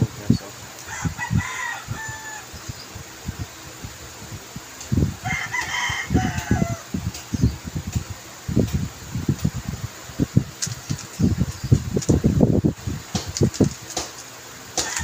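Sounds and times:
rooster crowing: 0.8 - 2.8, 5.2 - 7.0, 14.8 - 15.0
speed cube plastic clacks: 10.5 - 12.3, 13.2 - 15.0.

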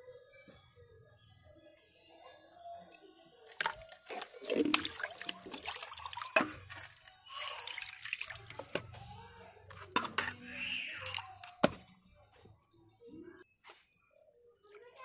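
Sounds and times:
water splashing in steel bowl: 3.6 - 8.9, 10.0 - 11.8.

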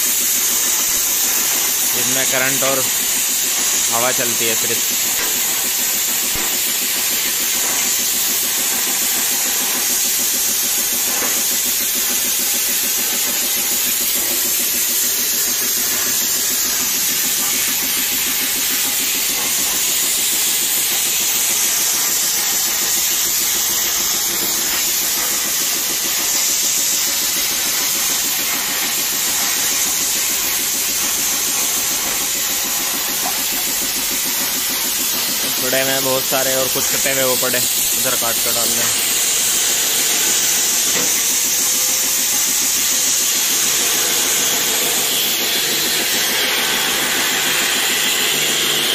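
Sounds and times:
plasma cutter hissing: 0.0 - 48.9.

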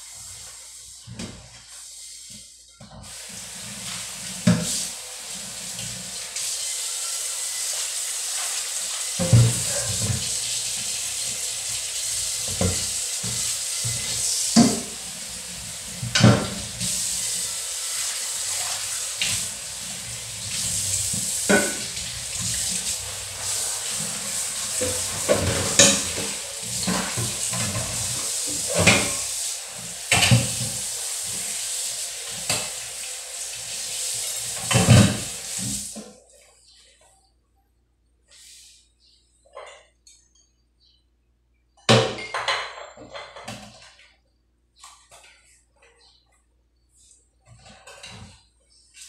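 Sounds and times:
faucet running into metal sink: 3.0 - 36.0.

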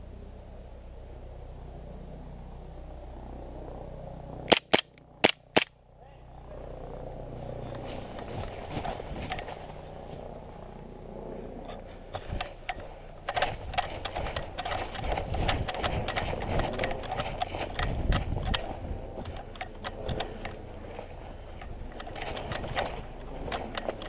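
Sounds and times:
airsoft pistol shots: 4.5 - 5.7
rustling in undergrowth: 7.2 - 11.0, 11.6 - 24.0
footsteps through undergrowth: 7.3 - 11.0, 11.6 - 24.0.

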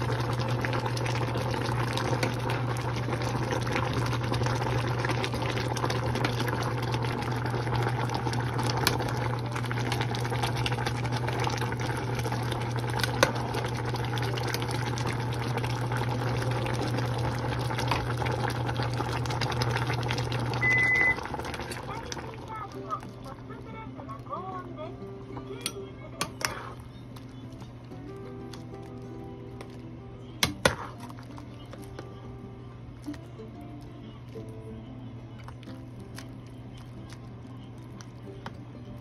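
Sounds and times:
broth boiling in a pan: 0.0 - 39.0
short beep: 20.6 - 21.2.

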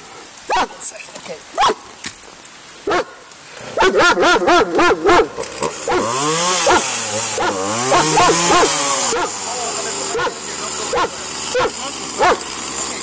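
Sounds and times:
dog barking rapidly: 0.5 - 0.8, 2.9 - 3.2, 3.8 - 9.3, 10.1 - 12.4
chainsaw cutting log: 3.6 - 13.0.

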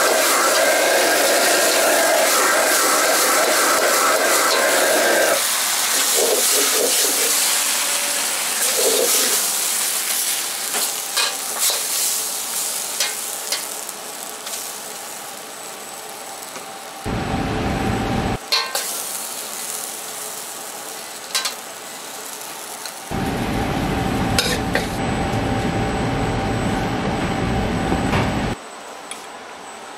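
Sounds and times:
noodles sizzling in a wok: 0.0 - 17.1, 18.4 - 23.2
ladle clinking and scraping wok: 10.8 - 12.1, 18.5 - 19.0
steady low hum: 17.1 - 18.4, 23.1 - 28.6.

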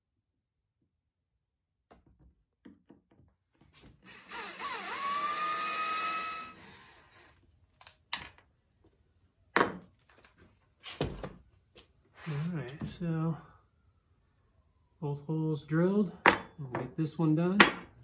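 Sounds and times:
electric drill boring through steel: 4.0 - 7.4.

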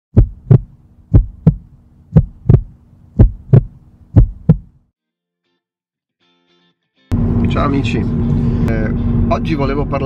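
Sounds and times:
heartbeat thumps: 0.1 - 4.8
steady low hum: 0.2 - 4.8.

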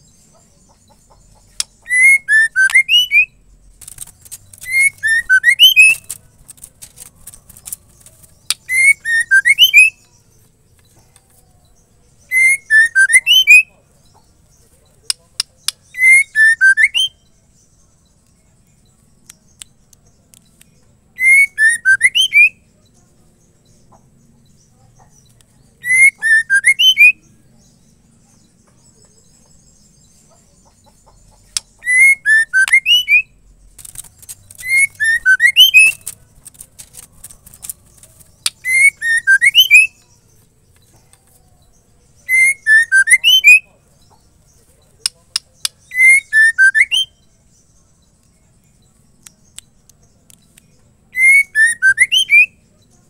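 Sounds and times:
bird whistling call: 1.8 - 3.4, 4.6 - 6.1, 8.6 - 10.0, 12.3 - 13.7, 16.0 - 17.2, 21.2 - 22.6, 25.8 - 27.2, 31.8 - 33.4, 34.6 - 36.1, 38.6 - 40.0, 42.3 - 43.7, 45.9 - 47.2, 51.2 - 52.6.

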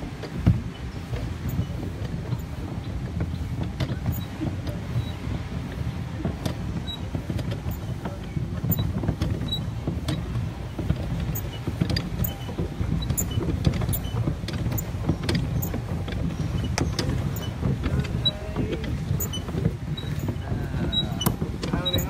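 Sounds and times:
boat engine rumble: 0.0 - 22.0.

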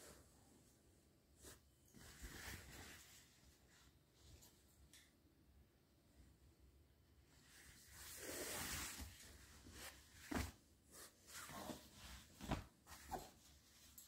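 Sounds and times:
denim fabric rustling: 0.1 - 4.6, 7.2 - 14.0.

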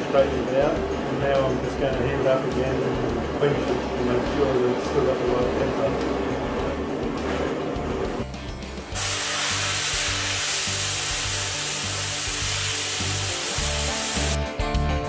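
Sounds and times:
background music with low beat: 0.0 - 9.0
guitar music: 0.0 - 15.0
torch flame hissing: 8.8 - 14.4.

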